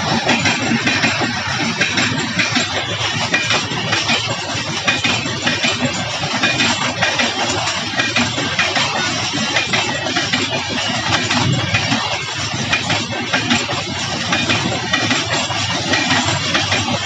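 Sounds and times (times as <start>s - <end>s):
wheels clicking and clattering: 0.0s - 17.0s.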